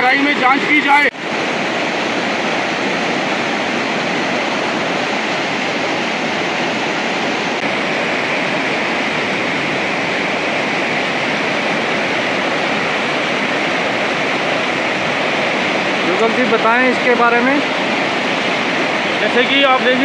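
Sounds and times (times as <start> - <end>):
river rushing with steady roar: 0.0 - 20.0.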